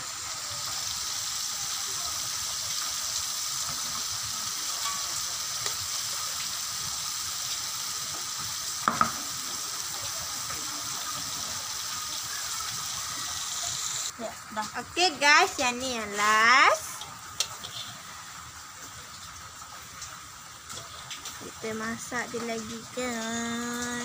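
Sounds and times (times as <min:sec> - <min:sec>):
food deep-frying in oil: 0:00.0 - 0:24.0
metal tongs clinking on wok: 0:04.7 - 0:05.8.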